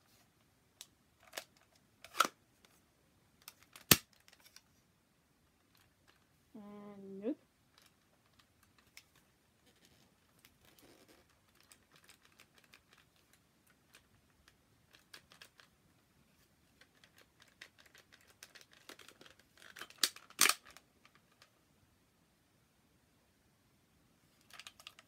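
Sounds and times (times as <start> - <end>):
plastic toy clicking and rattling: 7.7 - 15.7, 16.8 - 21.5, 24.4 - 25.0.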